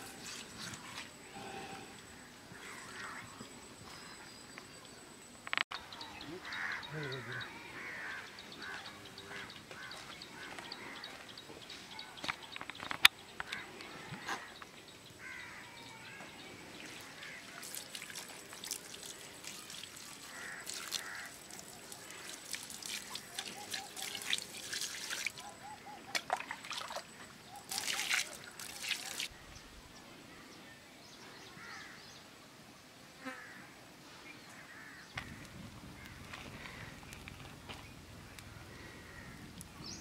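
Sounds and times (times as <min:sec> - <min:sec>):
water splashing over chicken: 0:17.5 - 0:25.4, 0:27.7 - 0:29.3.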